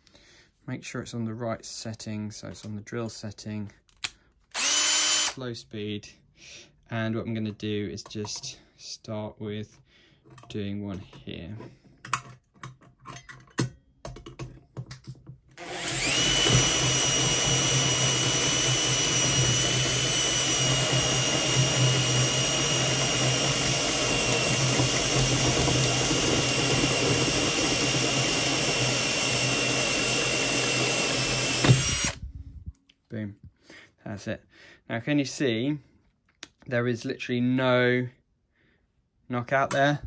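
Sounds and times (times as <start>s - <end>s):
drill whining cutting steel: 4.5s - 5.4s, 15.6s - 32.2s.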